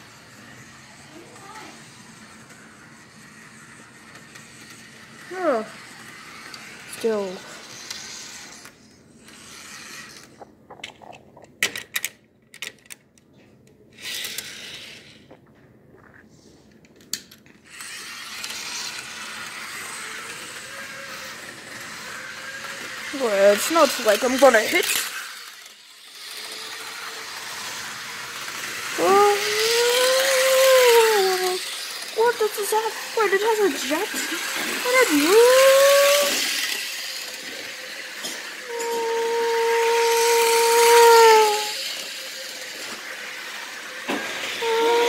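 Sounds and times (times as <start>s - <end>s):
model train clicking and rattling: 0.1s - 13.0s, 16.8s - 45.0s
drawn-out voice rising in pitch: 28.9s - 36.6s, 38.6s - 41.8s, 44.6s - 45.0s.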